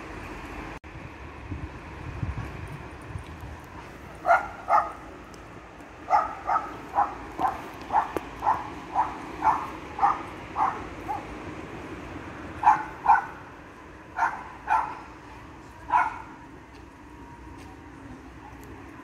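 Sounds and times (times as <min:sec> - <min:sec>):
dog barking: 0:04.2 - 0:05.0, 0:06.1 - 0:11.3, 0:12.6 - 0:13.4, 0:14.2 - 0:15.1, 0:15.9 - 0:16.3.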